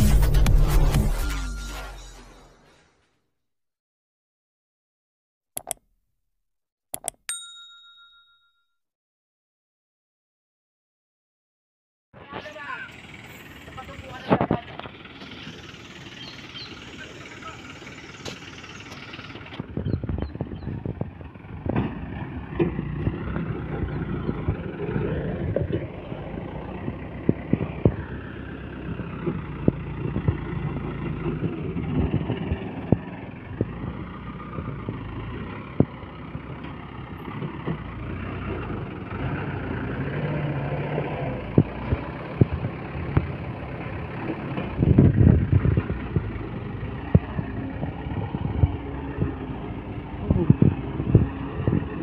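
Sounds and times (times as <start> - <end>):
diesel truck engine running: 12.2 - 52.0.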